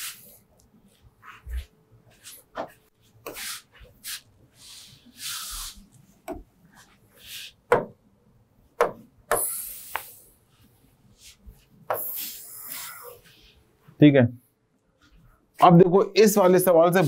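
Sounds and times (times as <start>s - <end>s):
soft brushing noises: 0.0s - 7.6s, 9.8s - 14.0s.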